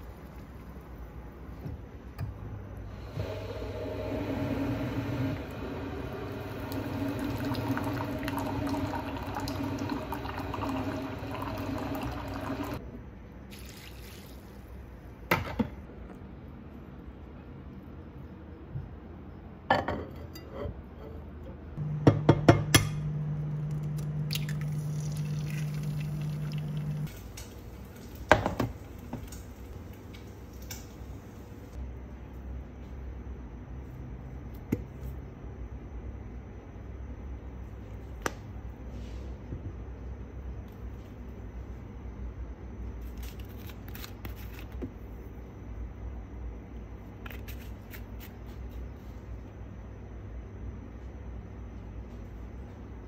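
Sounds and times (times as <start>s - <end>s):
steady low hum: 0.0s - 13.6s, 14.6s - 53.0s
kitchen appliance humming: 1.6s - 12.8s, 21.8s - 29.9s.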